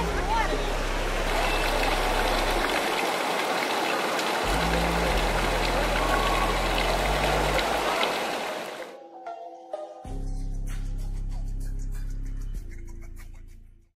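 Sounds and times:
river water rushing: 0.0s - 9.0s.

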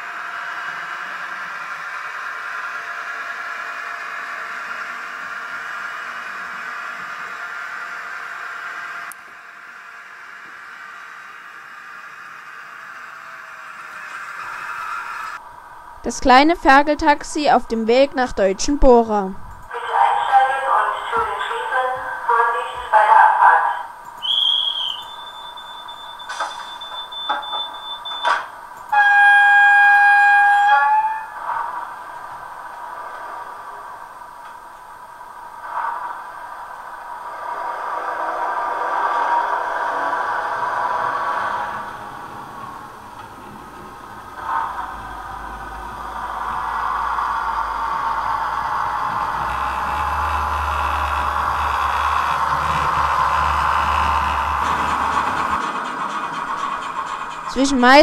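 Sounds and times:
model train whirring on track: 0.0s - 18.8s, 19.6s - 58.0s
low hum: 9.1s - 29.0s, 31.0s - 58.0s
model train horn: 28.9s - 31.7s, 44.4s - 54.9s.

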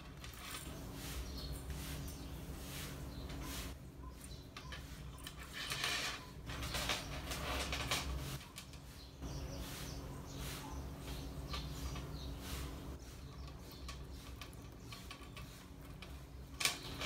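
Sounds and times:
yarn swishing: 0.0s - 3.8s, 6.6s - 16.3s.

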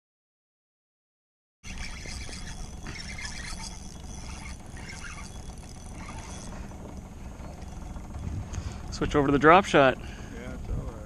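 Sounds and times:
fishing reel whirring and clicking: 1.6s - 10.4s
steady low rumble: 2.5s - 11.0s.

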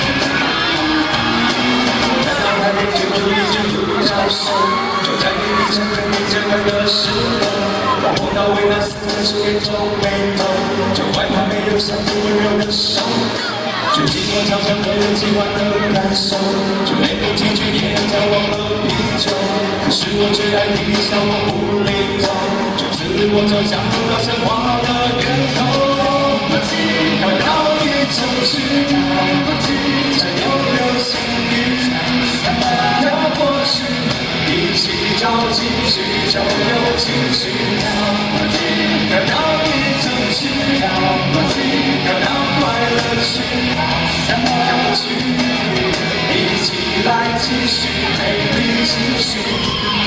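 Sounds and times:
loud band music: 0.0s - 50.0s
man singing: 0.0s - 50.0s.

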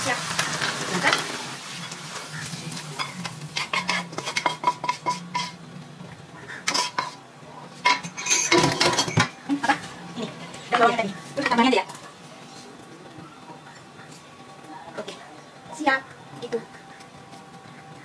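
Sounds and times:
faint sizzle: 0.0s - 18.0s
utensils knocking on pan: 3.0s - 5.6s, 7.8s - 9.8s.

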